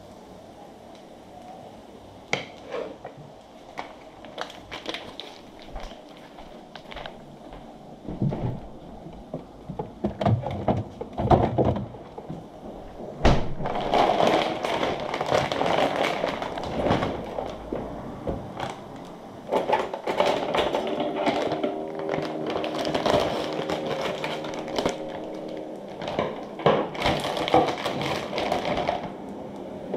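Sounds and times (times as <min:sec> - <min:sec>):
plastic bag crinkling: 0:03.7 - 0:07.4, 0:13.5 - 0:29.9.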